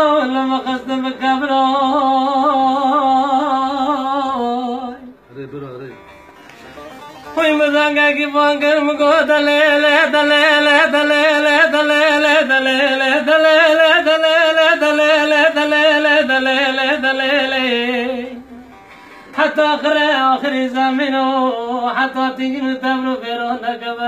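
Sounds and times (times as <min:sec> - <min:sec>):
man singing a lament: 0:00.0 - 0:05.0, 0:07.4 - 0:18.4, 0:19.3 - 0:24.0
long-necked lute accompaniment: 0:05.9 - 0:11.0, 0:16.0 - 0:21.4.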